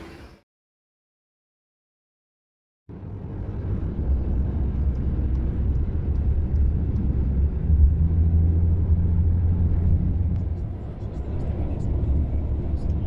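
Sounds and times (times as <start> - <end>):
car interior road rumble: 2.9 - 13.0.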